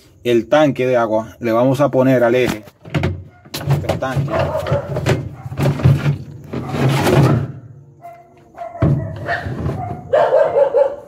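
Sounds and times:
dog barking: 3.3s - 3.6s, 4.2s - 5.8s, 6.6s - 11.0s.

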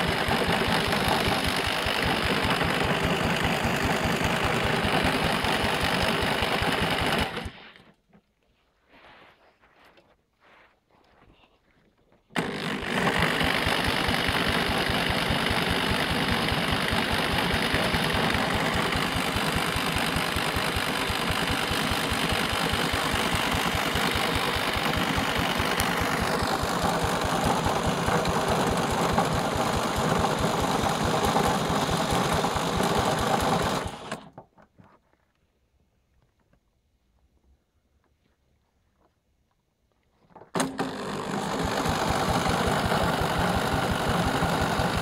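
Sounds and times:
electric drill whining: 0.0s - 7.7s, 12.4s - 30.4s, 32.6s - 34.2s, 40.6s - 45.0s
engine turning over: 0.0s - 7.8s, 12.3s - 34.4s, 40.5s - 45.0s.

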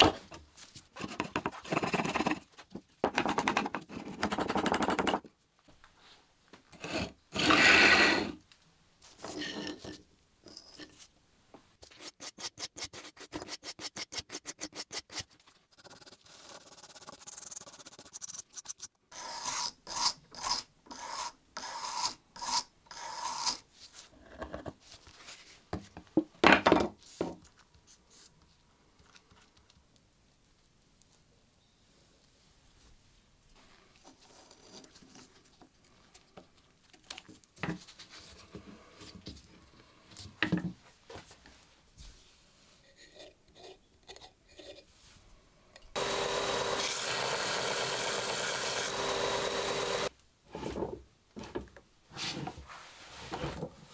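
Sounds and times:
hand tool scraping wood: 6.8s - 8.4s.

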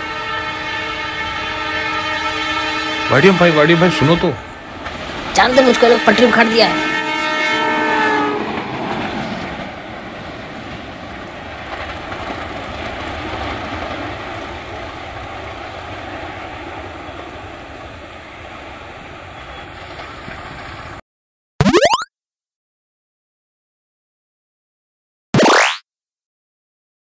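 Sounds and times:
locomotive horn blast: 0.0s - 4.5s, 5.4s - 8.6s
train wheels on rails: 8.3s - 21.0s.

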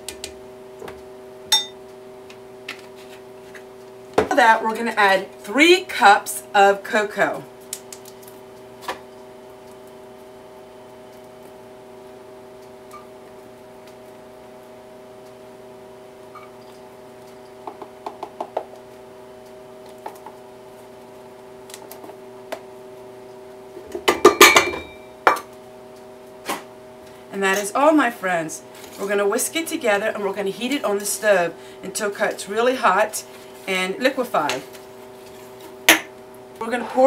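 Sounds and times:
steady hum: 0.0s - 37.0s
metal cup clinking on a pot: 1.5s - 1.8s.

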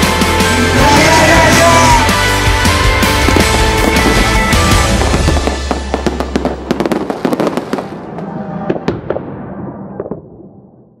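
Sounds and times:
music: 0.0s - 9.4s
fireworks crackling and popping: 2.8s - 9.2s.

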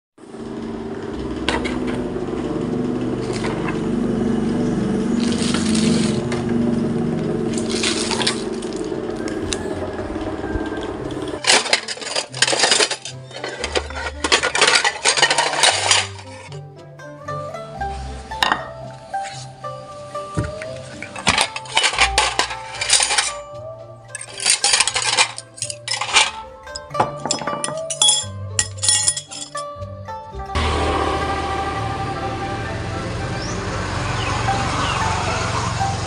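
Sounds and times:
pot lid and plate clattering: 11.4s - 16.5s, 18.4s - 18.8s, 21.0s - 23.4s, 24.1s - 29.7s.

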